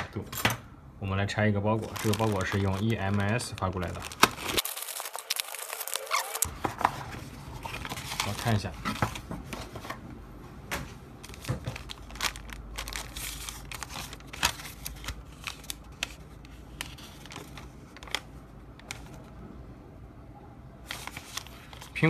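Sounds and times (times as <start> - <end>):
plastic bag crinkling: 1.6 - 6.6, 11.2 - 19.2.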